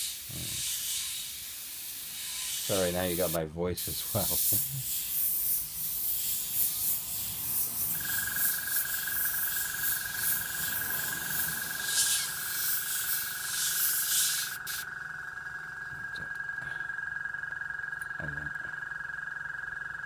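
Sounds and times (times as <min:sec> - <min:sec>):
airbrush spraying hiss: 0:00.0 - 0:14.9
steady high tone: 0:07.0 - 0:18.9.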